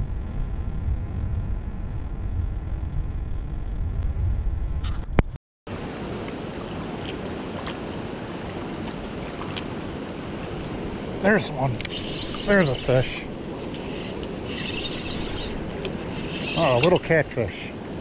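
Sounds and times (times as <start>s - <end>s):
wind on microphone: 0.0s - 17.2s
river water flowing: 5.7s - 18.0s
car road noise rumble: 5.8s - 17.2s
short high squeak: 13.8s - 17.0s.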